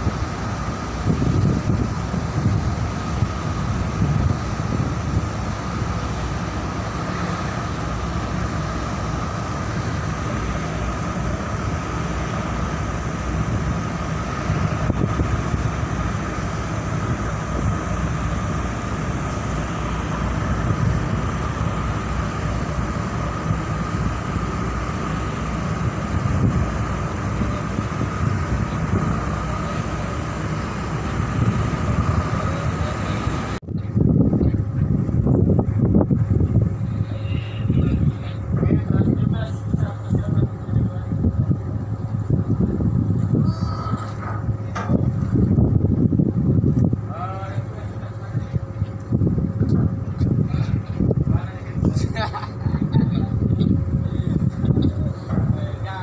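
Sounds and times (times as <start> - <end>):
constant whine: 0.0 - 56.0
ship engine running: 0.0 - 56.0
wind rumble on microphone: 0.0 - 56.0.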